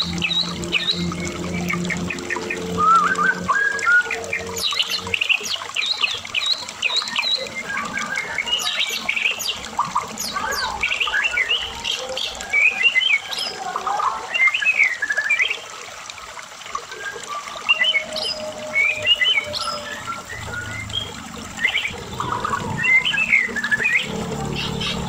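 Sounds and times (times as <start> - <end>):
songbird singing whistles and chatter: 2.8 - 5.0.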